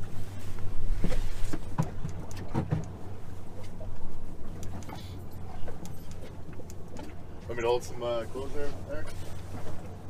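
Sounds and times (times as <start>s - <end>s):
boat motor humming: 0.0s - 10.0s.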